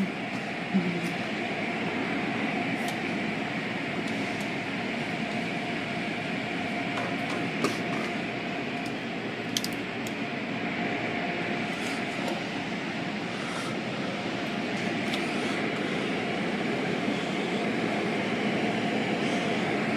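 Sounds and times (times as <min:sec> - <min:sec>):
faint hum: 0:00.0 - 0:19.9.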